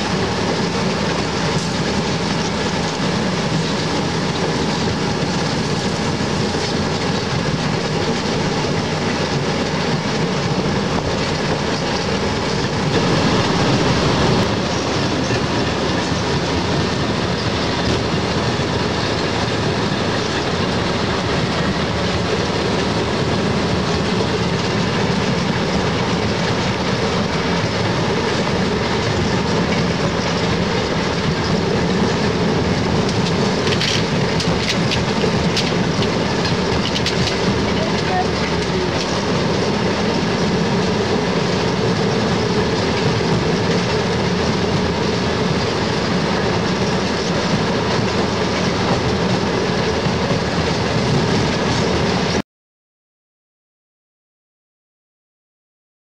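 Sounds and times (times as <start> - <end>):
train wheels on rails: 0.0 - 52.4.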